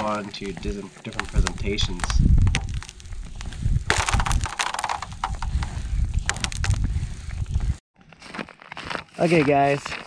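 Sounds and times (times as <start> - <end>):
boots crunching on ice: 8.0 - 10.0.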